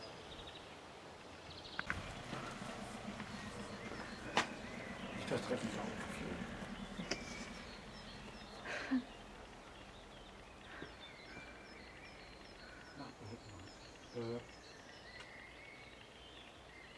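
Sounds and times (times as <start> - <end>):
small birds chirping: 0.0 - 16.9.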